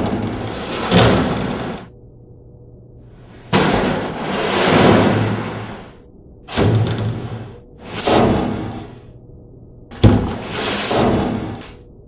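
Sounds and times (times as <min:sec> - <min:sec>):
jugs scraping on metal track: 0:00.0 - 0:01.9, 0:03.5 - 0:09.0, 0:10.2 - 0:11.8.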